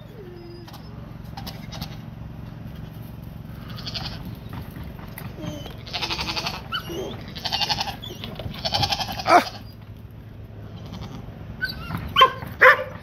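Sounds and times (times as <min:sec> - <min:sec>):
young goat bleating: 0:03.6 - 0:04.3, 0:05.8 - 0:09.8, 0:10.6 - 0:12.0.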